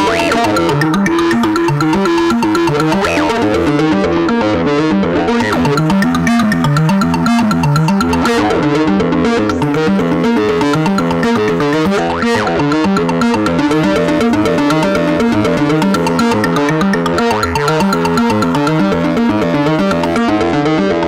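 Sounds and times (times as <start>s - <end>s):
upward synth sweep: 0.0s - 4.4s
stepping synth bass line: 0.0s - 20.4s
sequenced synthesizer notes: 0.0s - 21.0s.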